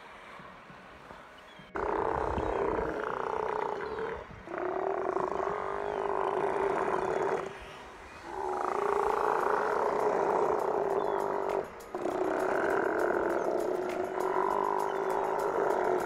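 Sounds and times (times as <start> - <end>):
sea lions calling: 1.7 - 16.0.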